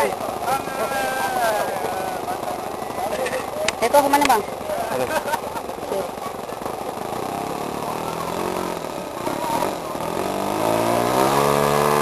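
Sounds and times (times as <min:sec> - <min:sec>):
model plane engine revving: 0:06.1 - 0:12.0.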